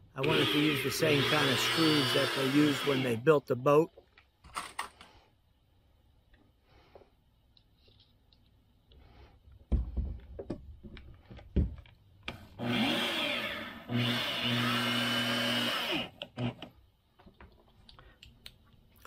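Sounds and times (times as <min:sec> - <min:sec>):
electric drill driving screws: 0:00.2 - 0:03.2, 0:12.3 - 0:16.7
thumps and clicks of handling: 0:09.5 - 0:12.4.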